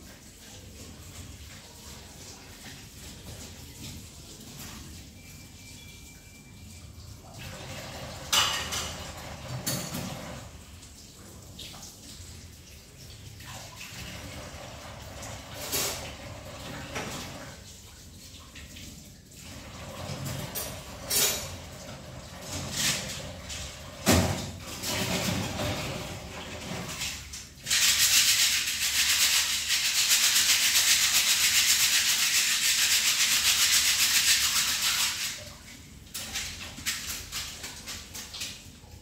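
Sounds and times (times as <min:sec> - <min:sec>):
dishes clinking: 0:08.3 - 0:10.3.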